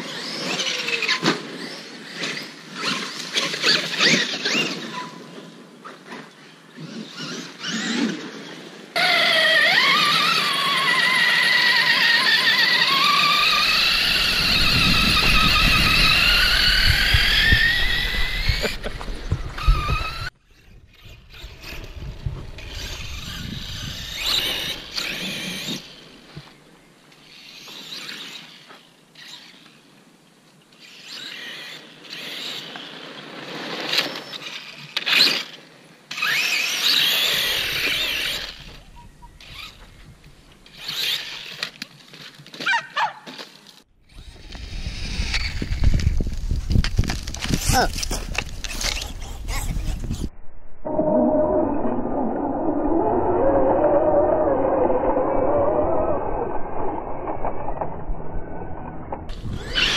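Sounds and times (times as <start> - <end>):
rc truck motors whining: 0.0 - 5.6, 6.3 - 29.9, 30.7 - 42.4, 43.4 - 50.3, 50.9 - 59.9.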